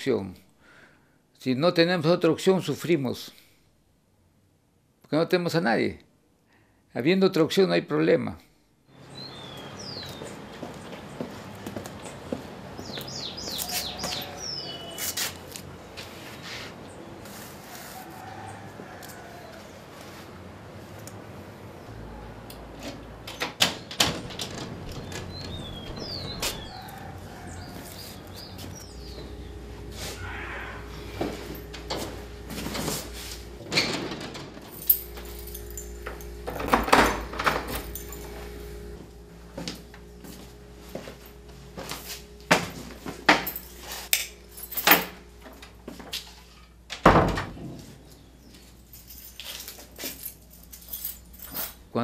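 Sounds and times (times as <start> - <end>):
birds chirping: 8.9 - 15.5, 23.8 - 32.5
wooden door shutting: 22.7 - 27.7, 31.0 - 35.3, 35.9 - 38.4, 46.9 - 48.0
keys rattling in metal door lock: 33.6 - 38.4, 43.3 - 45.2, 48.1 - 51.9.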